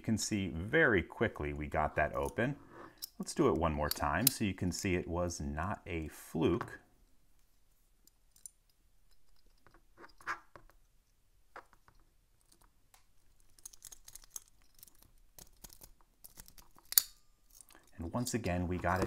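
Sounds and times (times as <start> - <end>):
lock pick scratching and clicking: 11.6 - 19.0.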